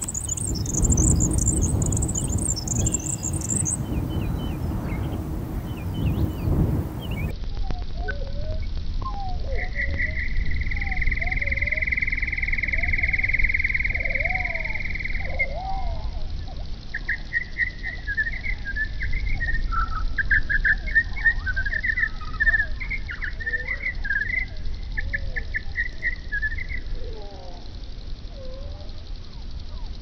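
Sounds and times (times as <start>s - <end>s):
soft low bird calls: 0.0s - 7.3s
songbird singing: 0.0s - 30.0s.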